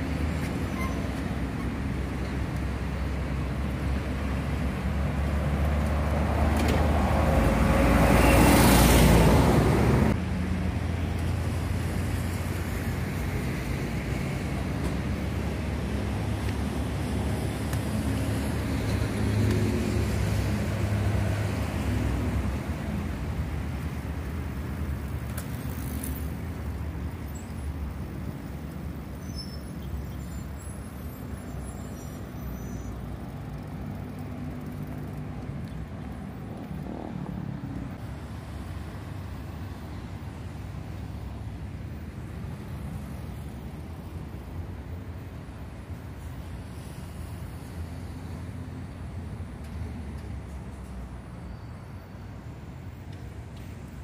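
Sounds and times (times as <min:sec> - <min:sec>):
bus diesel engine passing: 0:00.0 - 0:54.0
road traffic noise: 0:00.0 - 0:54.0.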